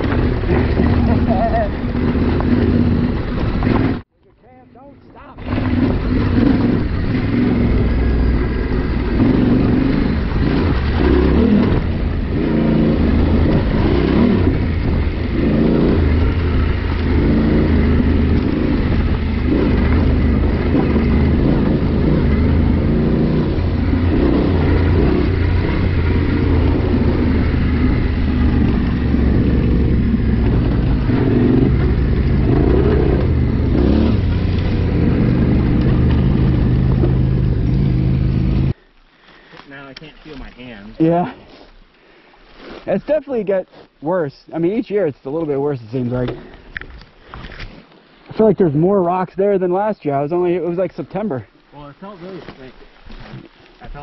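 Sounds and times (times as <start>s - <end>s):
motorcycle engine running: 0.0s - 4.1s, 5.4s - 38.8s.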